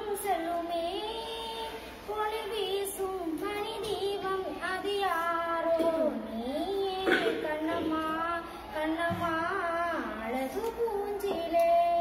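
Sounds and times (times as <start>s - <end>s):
girl singing unaccompanied: 0.0s - 12.0s.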